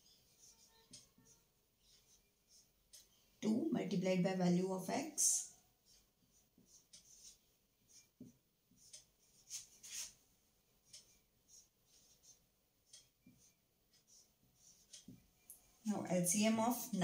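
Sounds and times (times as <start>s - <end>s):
marker squeaking on whiteboard: 0.0s - 3.2s, 5.8s - 10.2s, 10.8s - 15.3s.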